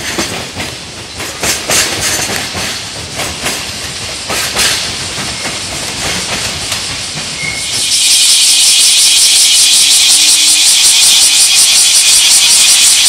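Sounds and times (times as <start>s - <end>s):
freight wagons clacking over rail joints: 0.0s - 7.6s
high-pitched fluttering hiss: 3.7s - 13.0s.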